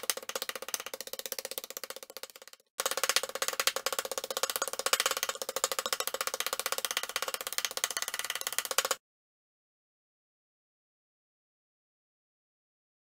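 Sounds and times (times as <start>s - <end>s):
music with fast percussive beat: 0.0s - 9.0s.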